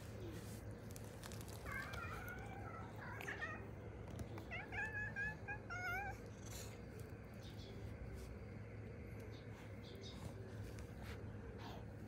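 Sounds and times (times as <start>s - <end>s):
cat meowing: 4.4s - 6.3s.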